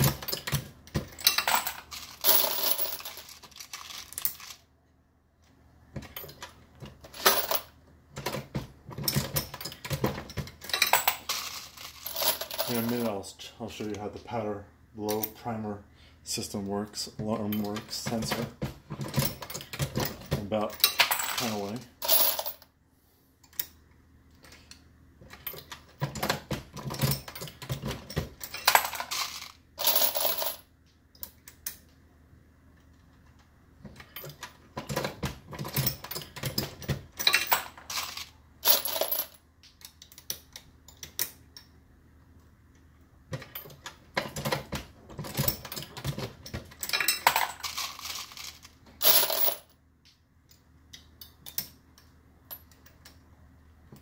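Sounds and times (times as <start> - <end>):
brass cases clinking: 0.0 - 4.6, 9.0 - 13.1, 35.6 - 39.4, 45.2 - 49.7.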